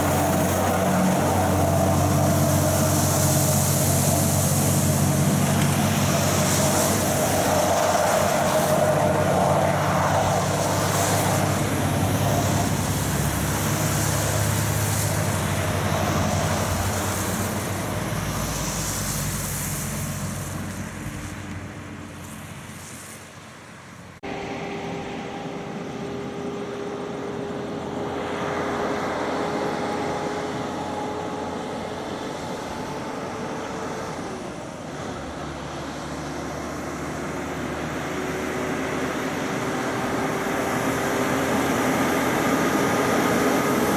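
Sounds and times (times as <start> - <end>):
tyres hissing: 0.0 - 24.1
traffic on a wet road: 0.0 - 43.9
truck engine whine: 0.0 - 43.9.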